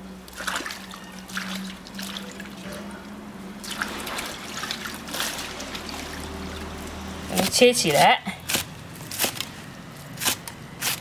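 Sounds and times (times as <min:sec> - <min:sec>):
low steady hum: 0:00.0 - 0:10.9
water splashing and dripping: 0:00.2 - 0:07.6.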